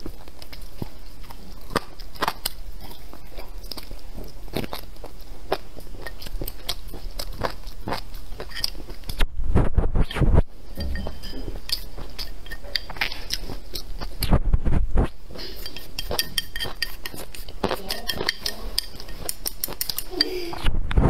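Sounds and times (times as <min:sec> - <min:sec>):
chewing rice with wet mouth sounds: 0:00.0 - 0:09.2, 0:10.7 - 0:14.3, 0:15.1 - 0:20.6
chopsticks tapping against bowl: 0:10.8 - 0:13.5, 0:15.4 - 0:20.4.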